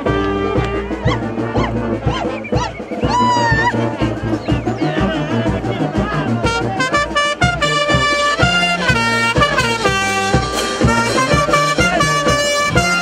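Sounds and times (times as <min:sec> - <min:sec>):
brass band playing: 0:00.0 - 0:13.0.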